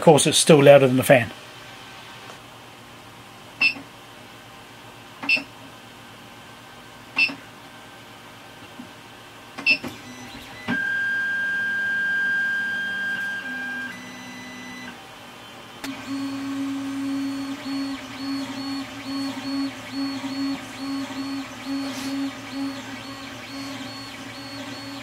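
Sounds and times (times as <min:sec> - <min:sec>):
stepper motors whining: 0:15.8 - 0:25.0
pulsing high tone: 0:16.1 - 0:25.0.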